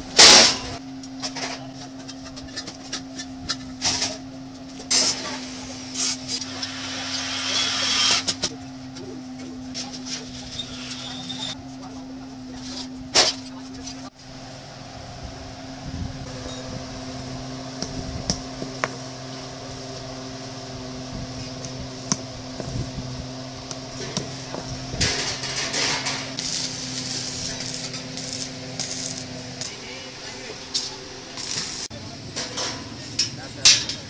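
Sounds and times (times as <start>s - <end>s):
steady hum: 11.4s - 32.8s
electric arc welding crackle: 16.2s - 30.1s, 30.8s - 31.9s.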